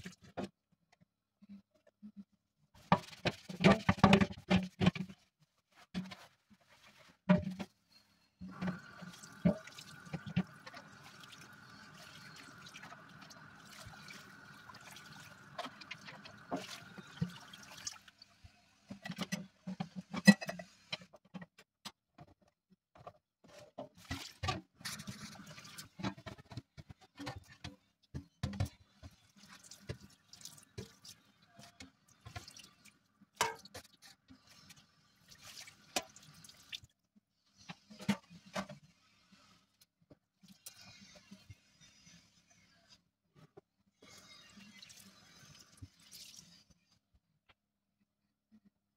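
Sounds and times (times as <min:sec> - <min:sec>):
tap water running into sink: 0:08.5 - 0:18.1.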